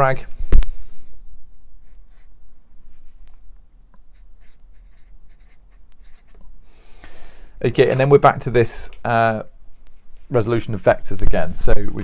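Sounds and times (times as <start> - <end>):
marker drawing on paper: 1.8 - 3.2, 4.0 - 6.4.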